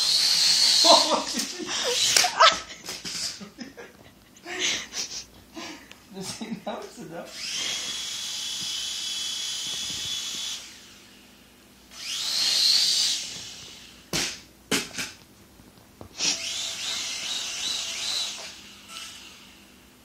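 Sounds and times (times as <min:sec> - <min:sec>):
toy drone motors whining: 0:00.0 - 0:02.5, 0:07.3 - 0:11.0, 0:11.9 - 0:14.0, 0:16.2 - 0:19.7.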